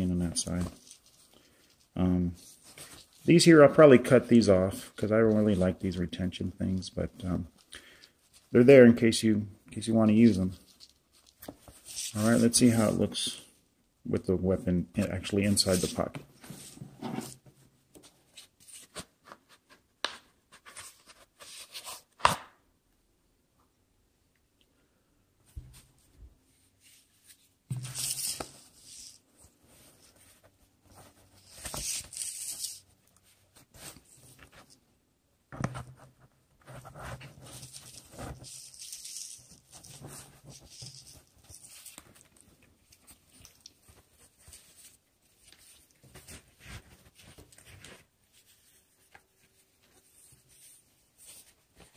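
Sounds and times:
cloth rubbing and scraping: 15.0s - 19.7s, 25.5s - 34.8s
holster rustling and scraping: 15.6s - 19.9s, 26.6s - 34.8s, 35.5s - 51.9s.

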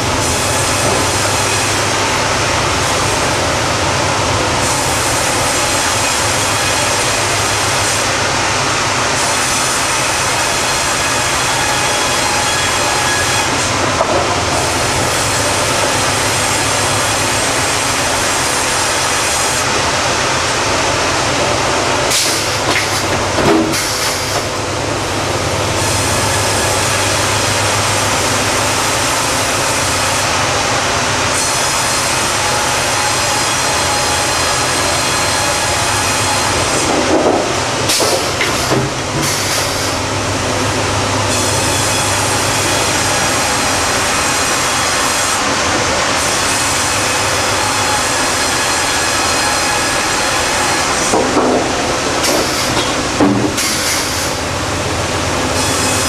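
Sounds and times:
band saw cutting log: 0.0s - 4.0s, 4.6s - 24.7s, 25.7s - 56.0s
mechanical knocks and squeals: 10.6s - 14.5s.

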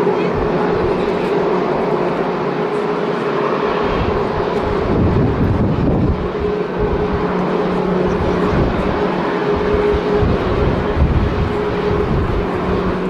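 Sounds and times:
jet engines roaring: 0.0s - 13.0s
wind buffeting microphone: 3.8s - 13.0s.

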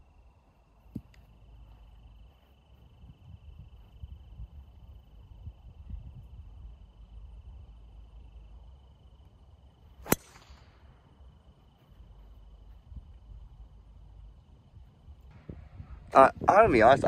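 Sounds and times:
golf ball struck off tee: 10.0s - 10.7s.

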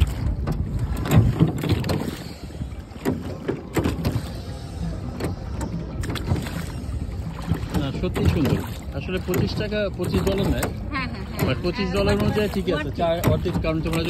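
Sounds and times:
oars knocking in oarlocks: 0.0s - 2.2s, 7.3s - 14.0s
oars splashing in water: 0.0s - 14.0s.

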